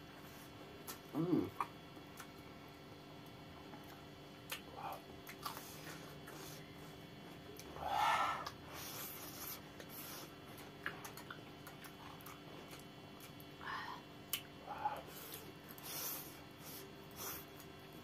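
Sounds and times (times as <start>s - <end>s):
people chewing: 0.2s - 2.4s, 3.6s - 18.0s.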